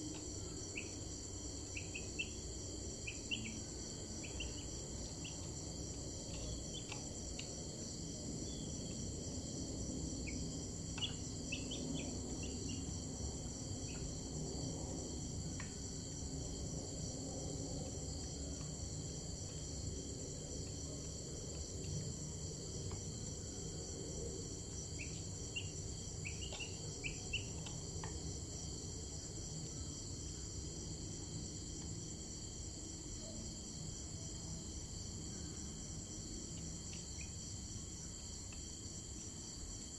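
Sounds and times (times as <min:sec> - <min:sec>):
low background rumble: 0:00.0 - 0:31.0
crickets chirping: 0:00.0 - 0:39.9.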